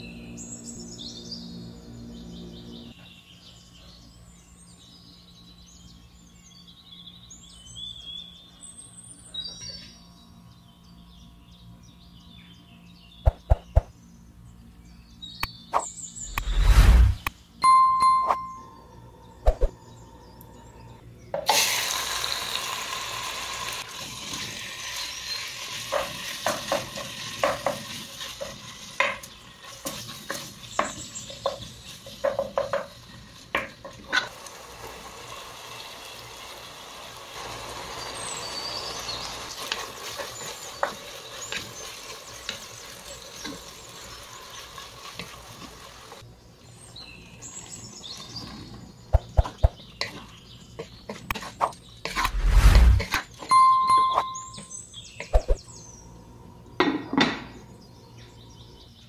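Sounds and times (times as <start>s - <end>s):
meat sizzling in oil: 21.5s - 46.2s.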